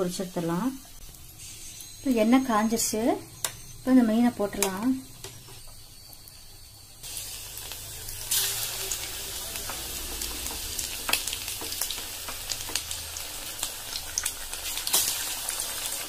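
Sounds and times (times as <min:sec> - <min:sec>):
fish deep-frying in hot oil: 0:03.8 - 0:16.0.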